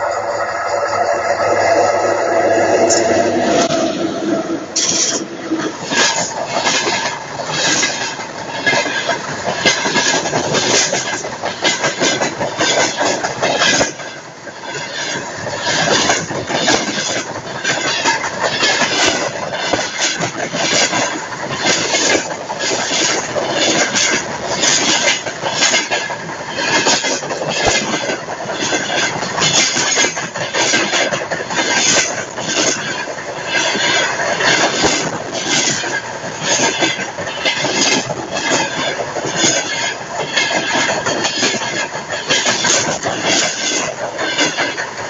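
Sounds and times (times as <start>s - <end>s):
steel wheels rolling on rails: 0.0s - 45.0s
wheels clacking: 4.7s - 45.0s.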